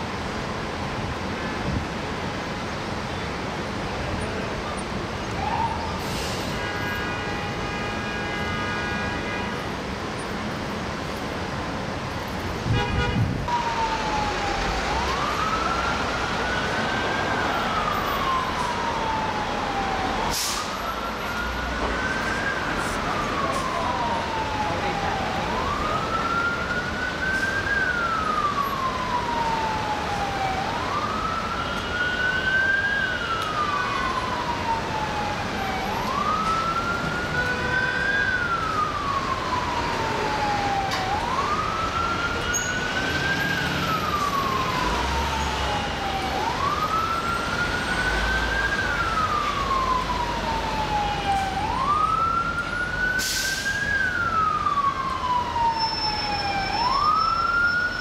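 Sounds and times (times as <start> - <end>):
city traffic noise: 0.0 - 58.0
siren wailing: 13.5 - 58.0.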